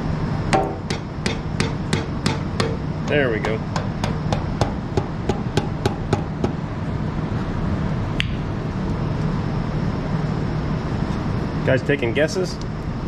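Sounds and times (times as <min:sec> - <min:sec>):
ringing hammer strike: 0:00.5 - 0:06.3
hammer knocking on metal: 0:00.5 - 0:06.6.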